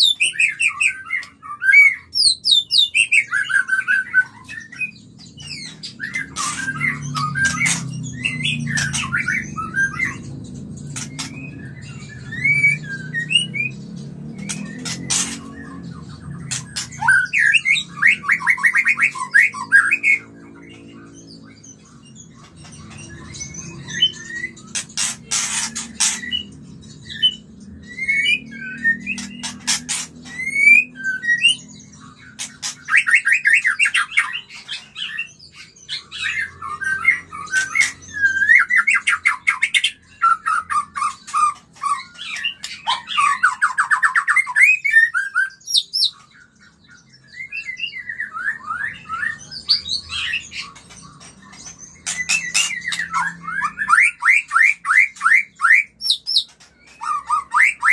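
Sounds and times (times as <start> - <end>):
bird chattering trills: 0.0 - 57.9
bird whistled notes: 27.1 - 31.8.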